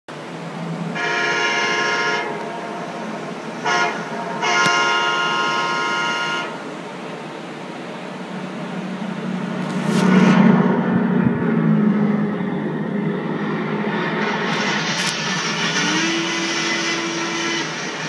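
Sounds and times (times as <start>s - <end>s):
train running noise: 0.1s - 18.0s
train horn blasts: 0.9s - 6.7s, 15.8s - 17.7s.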